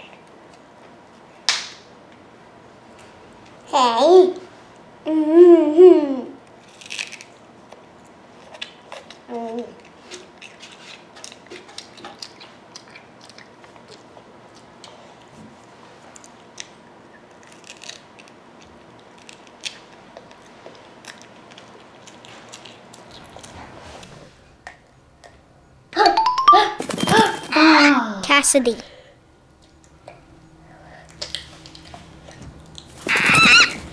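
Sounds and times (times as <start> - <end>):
child murmuring: 5.0 - 6.4
child chewing crunchy food: 6.6 - 23.8, 29.6 - 33.9.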